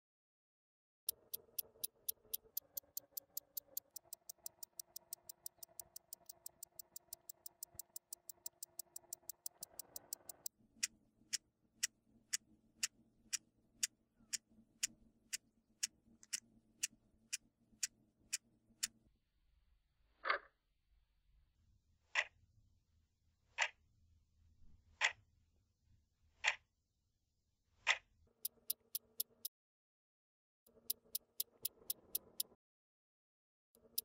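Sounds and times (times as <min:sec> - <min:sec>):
clock ticking: 0:01.0 - 0:19.0, 0:28.3 - 0:29.5, 0:30.7 - 0:32.6, 0:33.8 - 0:34.0.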